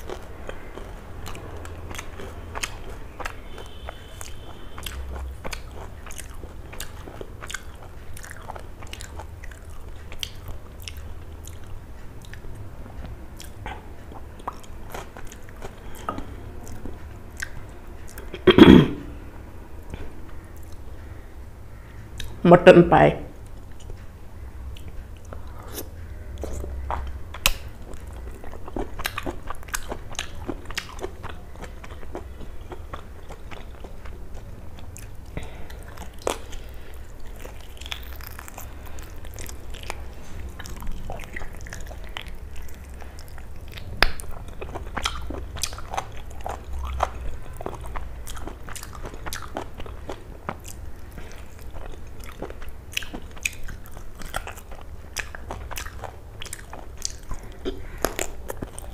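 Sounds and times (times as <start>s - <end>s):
low steady hum: 0.0s - 58.9s
biting and chewing bone: 24.8s - 58.9s.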